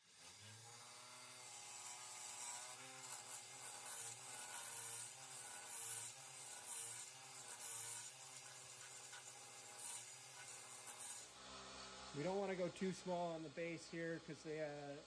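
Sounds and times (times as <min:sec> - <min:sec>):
lathe tool scraping wood: 0:00.2 - 0:15.0.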